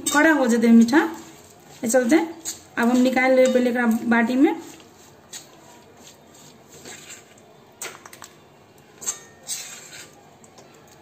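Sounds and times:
metal spoon scraping a pan: 1.1s - 8.2s, 8.9s - 10.3s.

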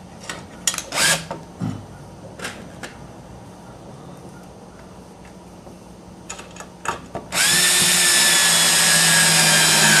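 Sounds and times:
cordless drill whining: 7.3s - 10.0s.

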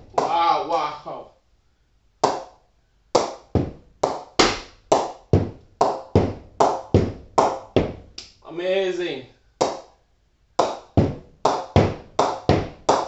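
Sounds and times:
ball knocking on cricket bat: 10.6s - 13.0s.

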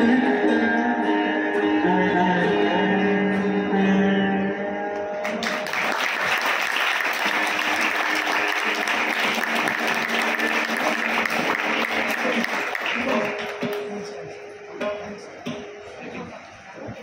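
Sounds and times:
audience applause: 5.2s - 13.8s
surbahar notes ringing: 7.3s - 16.8s.

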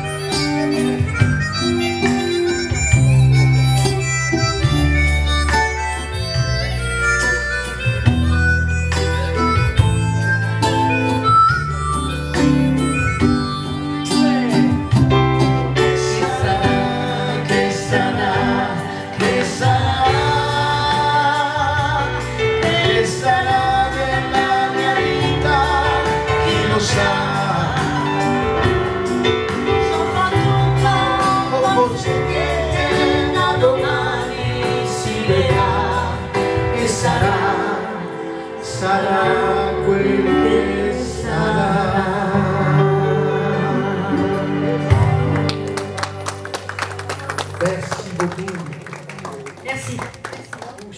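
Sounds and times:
electronic keyboard: 0.0s - 49.3s
guitar: 0.0s - 49.6s
man singing: 15.6s - 45.0s
woman singing: 29.8s - 36.0s.

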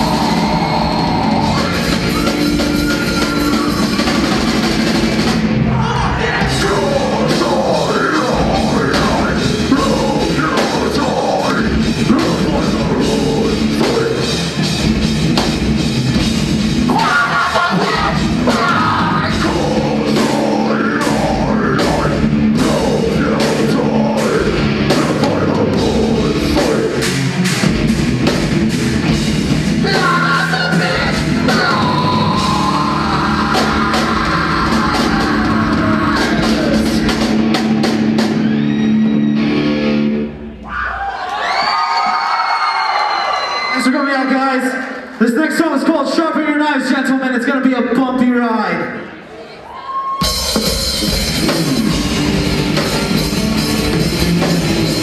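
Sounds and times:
drum kit with crashing cymbals: 0.0s - 5.7s, 50.2s - 55.0s
distorted electric guitars: 0.0s - 40.6s, 50.2s - 55.0s
bass guitar: 0.0s - 40.8s, 50.2s - 55.0s.

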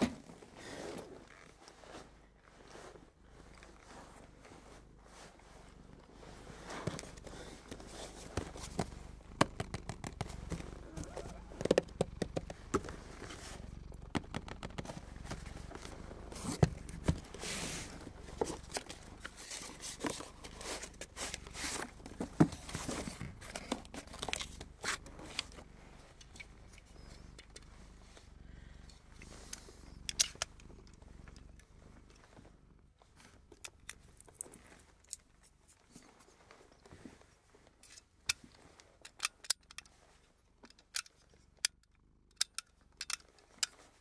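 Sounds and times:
cardboard and paper rustling: 6.7s - 25.5s
sharp clicks and taps: 8.4s - 13.3s, 13.9s - 15.9s.

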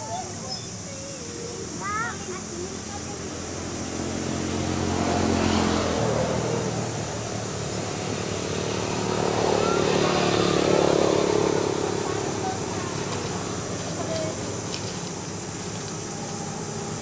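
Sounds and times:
vehicle engine humming: 0.0s - 17.0s.

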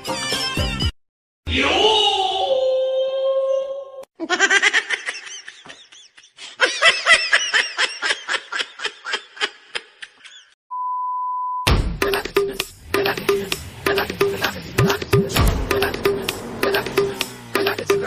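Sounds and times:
high-pitched laughter: 4.2s - 10.6s.

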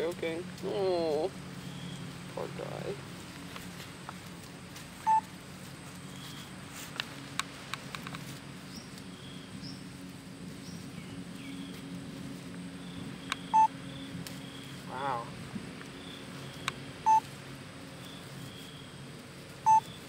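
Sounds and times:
low hum: 0.0s - 20.0s
short electronic beeps: 5.0s - 5.3s, 13.5s - 13.7s, 19.7s - 20.0s.

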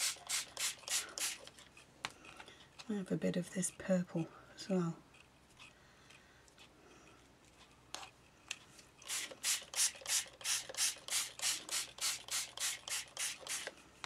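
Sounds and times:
spray bottle spritzing: 0.0s - 1.5s, 9.0s - 13.7s.

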